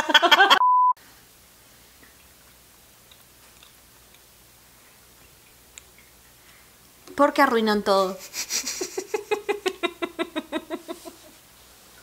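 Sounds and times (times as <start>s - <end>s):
people laughing: 0.0s - 0.6s, 8.2s - 11.3s
censor beep: 0.6s - 1.0s
chewing and mouth clicks: 2.0s - 4.3s, 4.9s - 6.3s.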